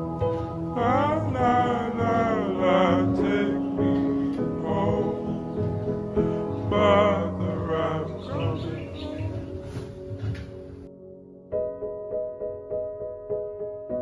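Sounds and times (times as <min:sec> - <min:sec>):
song with voices singing: 0:00.0 - 0:10.5.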